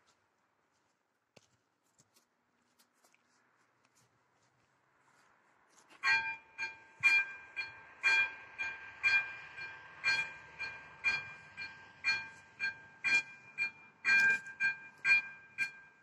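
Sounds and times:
level crossing warning bell: 5.9 - 16.0.

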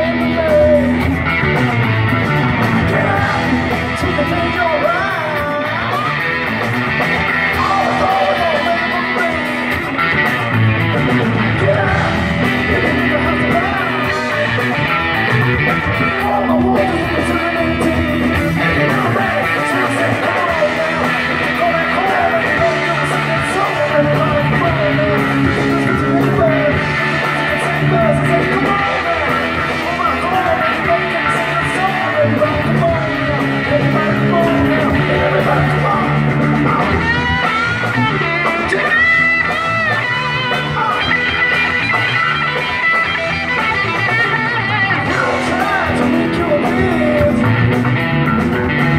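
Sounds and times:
drum kit: 0.0 - 48.9
electric guitars: 0.0 - 48.9.

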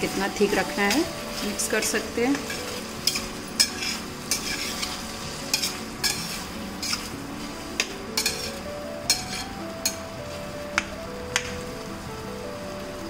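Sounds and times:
metal spatula scraping pan: 2.3 - 10.0.

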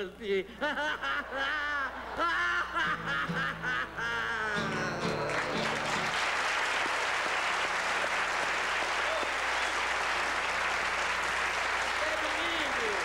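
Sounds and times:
plucked acoustic guitar notes: 4.3 - 6.1
audience applauding: 4.5 - 13.0.

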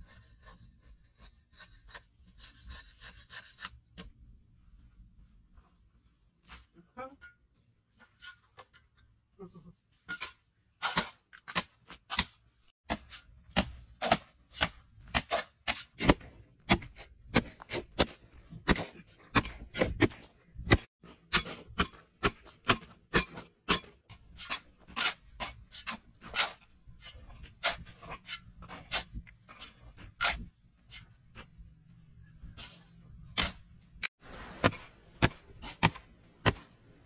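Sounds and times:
shovels striking and scraping soil: 10.0 - 37.0.

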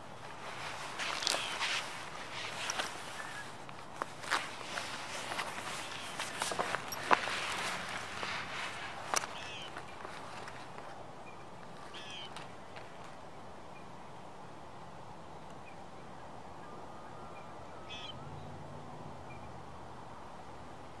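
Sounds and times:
outdoor background hiss: 0.0 - 21.0
bird calls: 1.0 - 3.6, 5.3 - 8.4, 9.1 - 10.1, 11.2 - 12.4, 16.6 - 18.5
faint bird chirps: 15.6 - 18.5.

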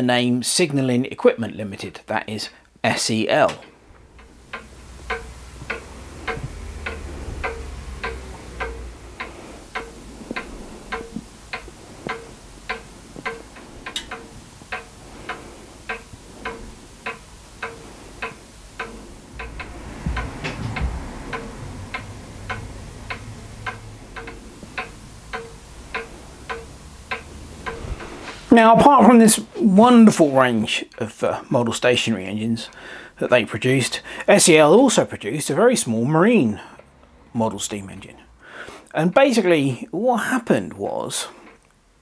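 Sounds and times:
clock ticking: 3.2 - 38.2.

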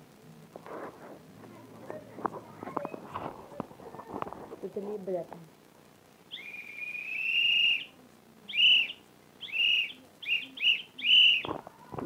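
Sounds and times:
high-pitched whistle blasts: 6.3 - 7.9, 8.5 - 11.5.

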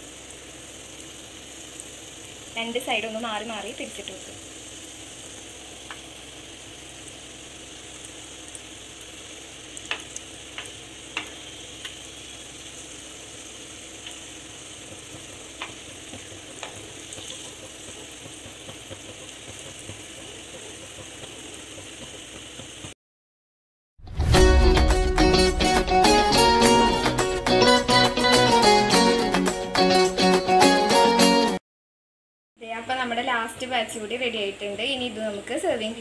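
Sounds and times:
food sizzling in hot oil: 0.0 - 23.0.

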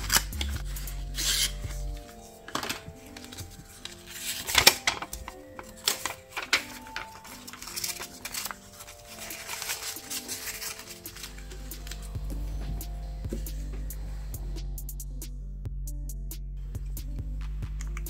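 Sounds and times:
paper rustling and crackling: 0.0 - 13.5
soft background music: 0.0 - 18.0.

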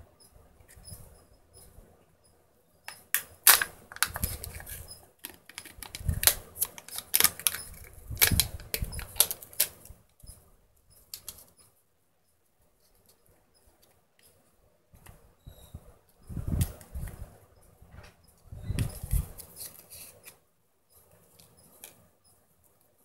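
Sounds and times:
plastic capsule clicks: 2.9 - 7.6
foil and plastic wrapping crinkling: 3.4 - 9.8.

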